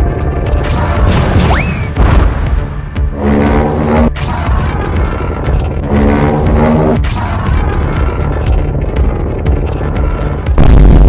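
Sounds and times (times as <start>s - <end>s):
background music: 0.0s - 11.0s
deep explosion boom: 10.6s - 11.0s.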